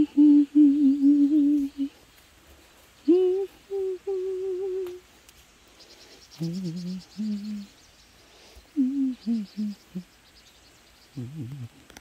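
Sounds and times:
person humming a slow tune: 0.0 - 2.1, 3.0 - 5.2, 6.4 - 7.8, 8.7 - 10.2, 11.2 - 11.8.

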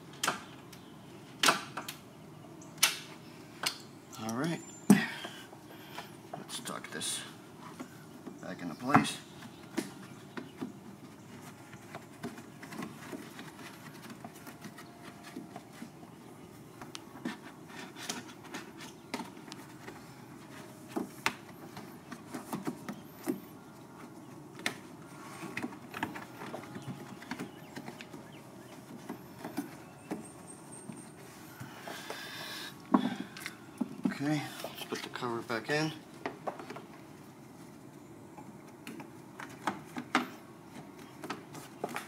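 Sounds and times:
rustling: 9.2 - 35.4.

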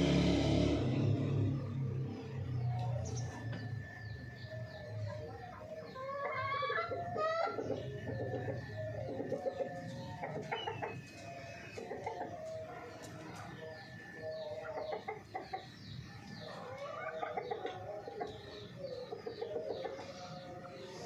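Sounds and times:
chickens clucking: 2.1 - 21.0.

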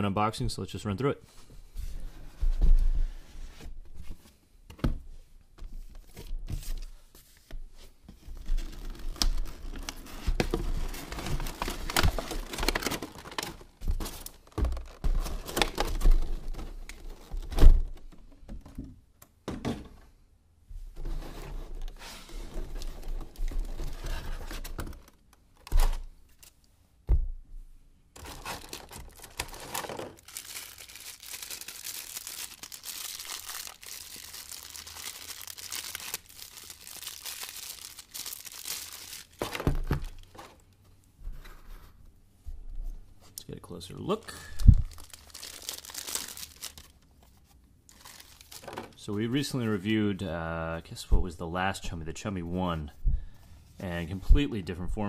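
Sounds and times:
plastic packaging crinkling and tearing: 8.4 - 17.5, 28.2 - 40.7, 44.0 - 49.1.

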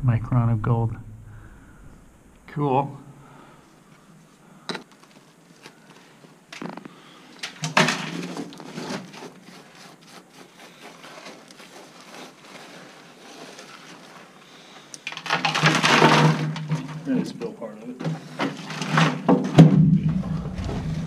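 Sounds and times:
rock rubble scraping and clattering: 6.6 - 9.8, 15.1 - 17.5.

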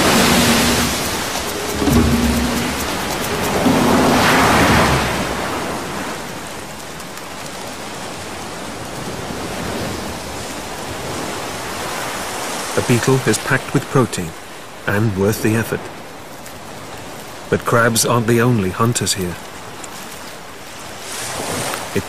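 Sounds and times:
surf breaking on beach: 0.0 - 13.9.

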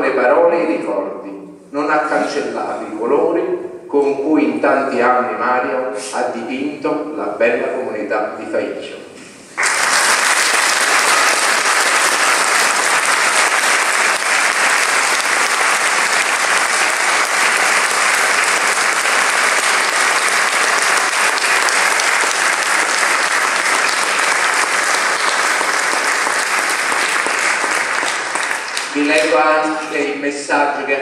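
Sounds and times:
congregation applauding: 9.6 - 30.2.

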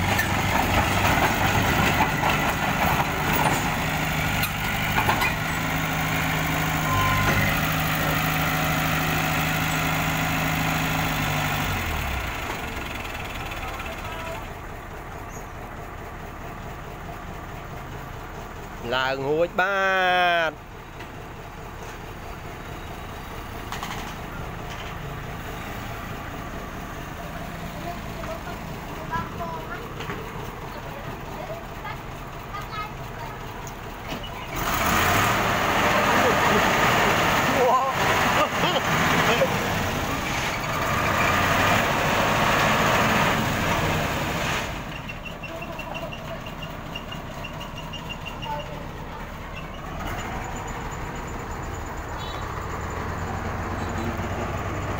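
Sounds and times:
heavy diesel engine running: 0.0 - 54.9
short high beeps: 6.9 - 7.3.

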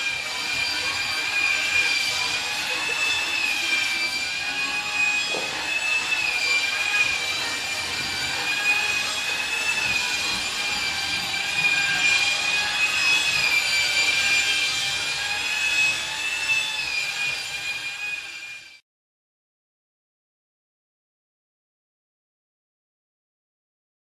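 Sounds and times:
shop vacuum running: 0.0 - 18.8.

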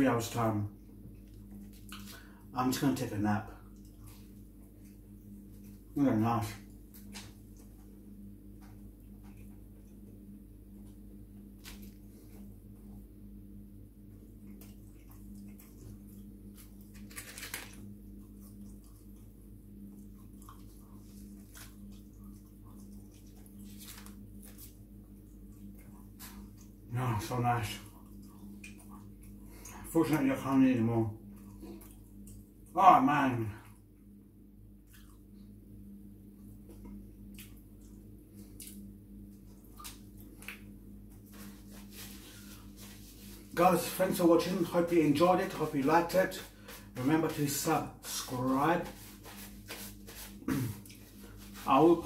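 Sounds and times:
steady low hum: 0.0 - 52.0
paper wrapper rustling: 16.9 - 17.8
paper napkin rustling: 41.2 - 52.0.

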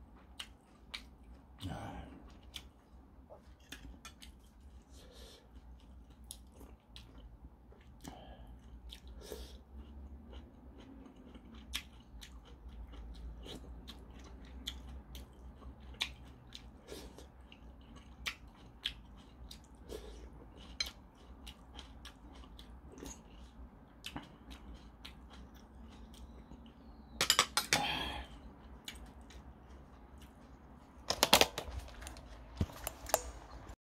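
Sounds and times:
person chewing: 0.0 - 33.8
spoon and fork clicking on bowl: 27.2 - 27.8.

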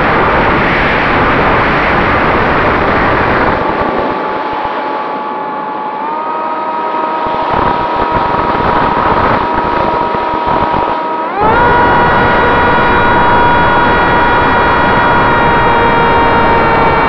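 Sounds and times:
wind rushing: 0.0 - 5.0, 7.3 - 15.6
electric motor whine: 0.0 - 17.0.

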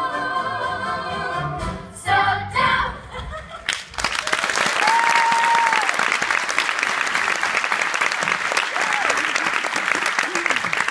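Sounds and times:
audience applause: 3.7 - 10.9.

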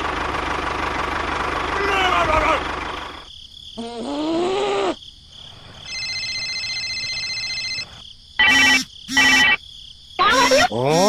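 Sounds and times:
phone ringing: 5.9 - 9.6
sliding pitched electronic call: 5.9 - 9.6
steady high electronic tone: 8.4 - 9.6.

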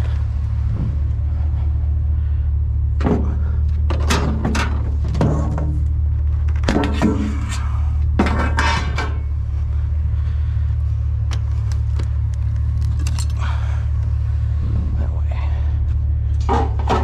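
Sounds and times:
truck engine idling: 0.0 - 17.0
metal scrap clattering: 8.2 - 9.3.

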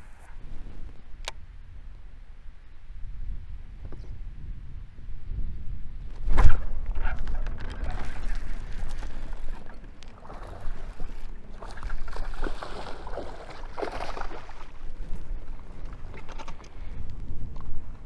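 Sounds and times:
water splashing: 6.4 - 16.7
fish thrashing at surface: 6.5 - 14.7.

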